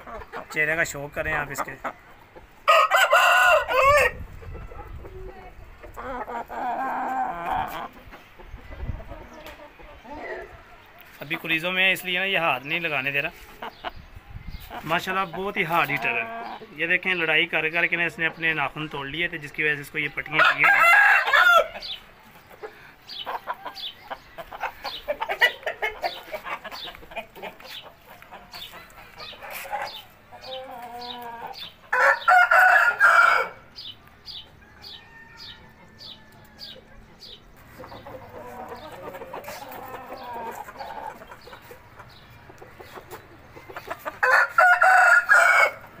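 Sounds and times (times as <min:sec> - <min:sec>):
roosters clucking and calling: 0:00.0 - 0:46.0
rooster crowing: 0:02.7 - 0:04.2, 0:20.4 - 0:21.8, 0:31.9 - 0:33.6, 0:34.6 - 0:36.8, 0:44.2 - 0:45.8.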